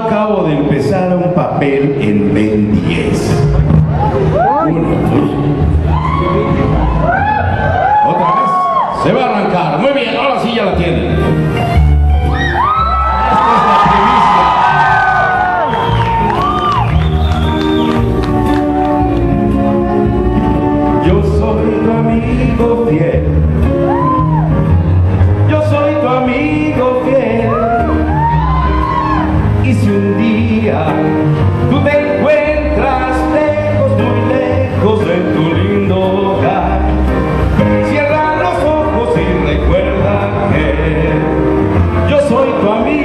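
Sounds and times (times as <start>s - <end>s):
man singing into a microphone: 0.0s - 3.6s, 4.5s - 6.6s, 20.9s - 24.0s, 25.4s - 28.4s, 29.5s - 43.0s.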